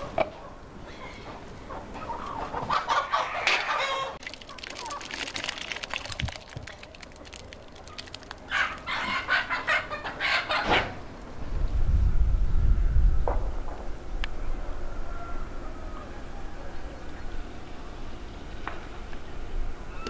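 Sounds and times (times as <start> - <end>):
chickens clucking: 0.0 - 5.6, 7.8 - 11.1
rice and water pouring into metal basin: 4.2 - 8.6.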